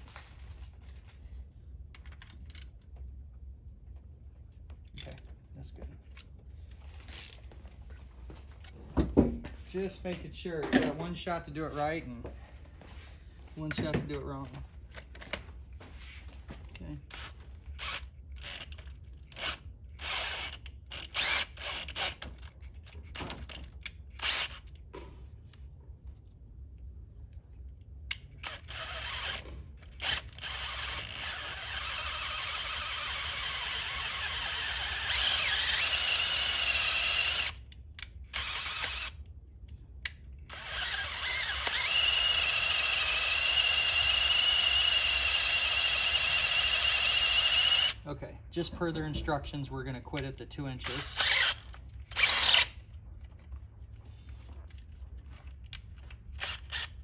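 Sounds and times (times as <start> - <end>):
cordless drill drilling into metal: 19.4 - 22.2, 24.2 - 24.6, 28.4 - 37.7, 38.3 - 39.2, 40.5 - 48.0, 50.8 - 52.8, 56.4 - 57.0.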